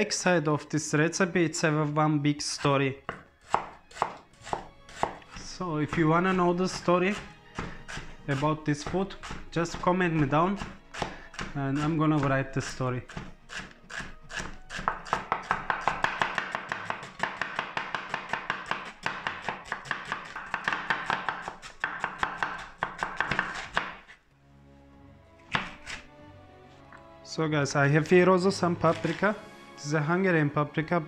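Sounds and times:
cleaver chopping on wooden board: 0:03.1 - 0:12.3, 0:13.0 - 0:24.1, 0:25.5 - 0:26.1.

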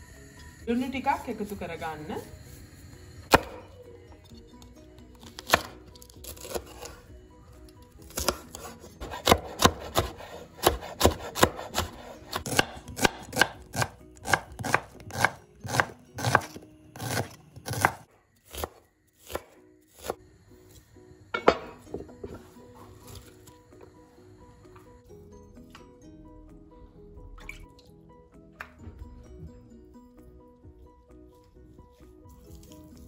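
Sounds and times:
knife chopping on wooden board: 0:03.3 - 0:03.7, 0:05.4 - 0:06.9, 0:08.1 - 0:20.2.

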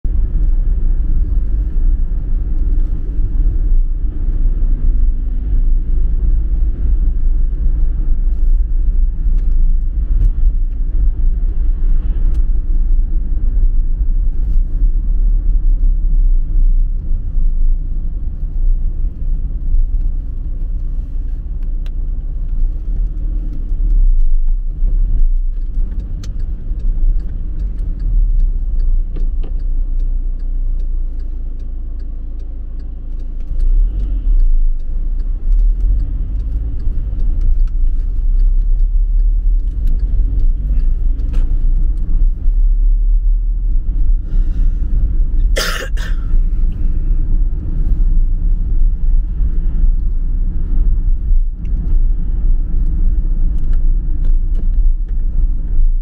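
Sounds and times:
car interior road rumble: 0:00.0 - 0:56.0
faint ticks: 0:13.4 - 0:55.9.

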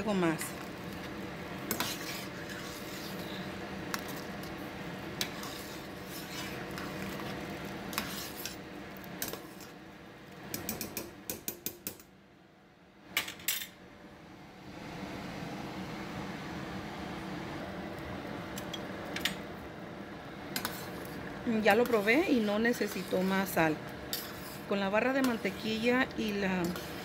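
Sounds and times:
metal spoon scraping a pot: 0:01.6 - 0:04.4, 0:05.2 - 0:08.6, 0:09.2 - 0:09.8, 0:20.6 - 0:27.0.

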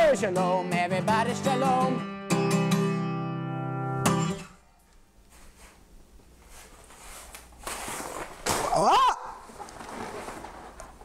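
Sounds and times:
guitar chord strummed: 0:00.0 - 0:04.6.

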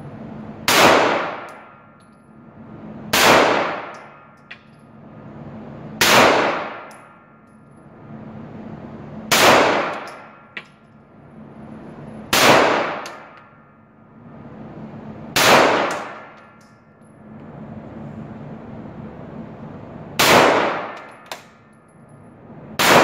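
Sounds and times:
pistol shots echoing: 0:03.1 - 0:04.1, 0:09.3 - 0:10.3, 0:12.3 - 0:13.4, 0:15.4 - 0:16.4, 0:20.2 - 0:21.2, 0:22.8 - 0:23.0.

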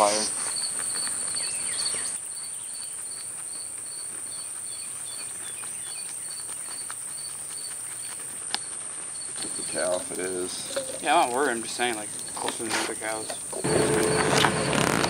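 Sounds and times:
cricket chirping: 0:00.0 - 0:15.0
insect high-pitched trill: 0:07.1 - 0:12.5.

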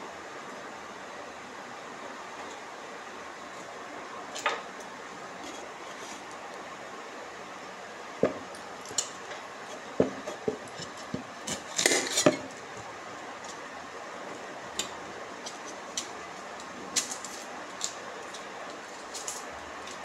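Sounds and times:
cookware clattering: 0:10.0 - 0:12.5.

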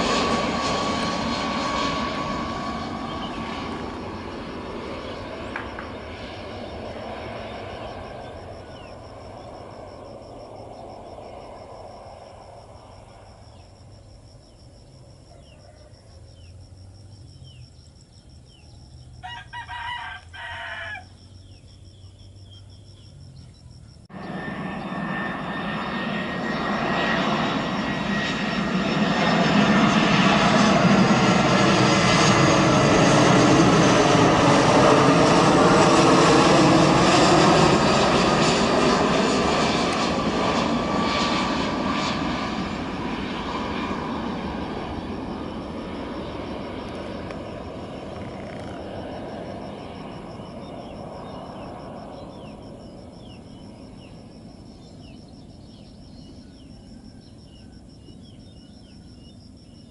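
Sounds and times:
jet airliner flying past: 0:00.0 - 0:59.9
faint bird chirps: 0:13.5 - 0:25.0, 0:50.4 - 0:59.9
rooster crowing: 0:15.3 - 0:16.3, 0:19.2 - 0:21.2.

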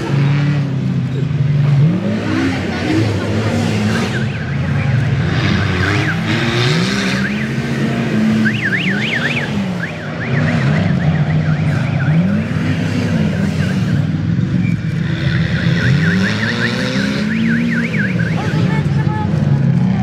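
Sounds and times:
engine revving: 0:00.0 - 0:20.0.

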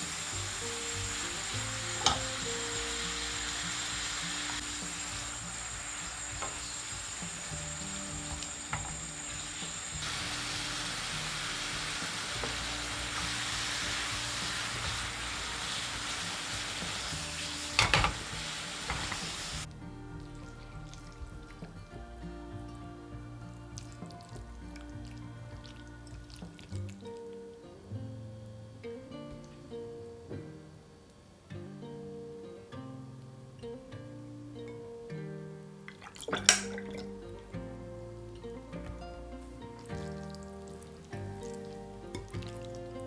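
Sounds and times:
food sizzling in a wok: 0:00.0 - 0:21.7, 0:38.0 - 0:43.0
spatula knocking pan: 0:02.0 - 0:02.4, 0:16.5 - 0:19.4.

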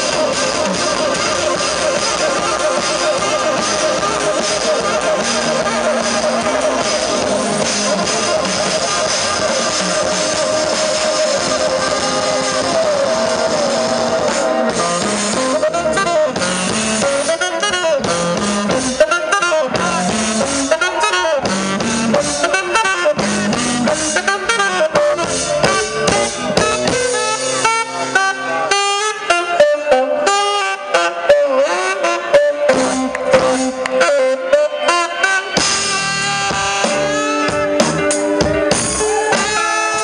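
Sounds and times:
funk band playing: 0:00.0 - 0:40.0
saxophone: 0:00.0 - 0:40.0.

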